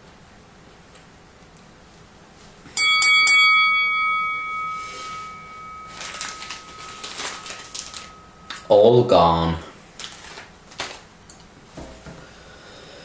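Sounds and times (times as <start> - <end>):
bell-like chime: 2.8 - 8.7
plastic bag crinkling: 5.8 - 8.7, 9.9 - 11.4.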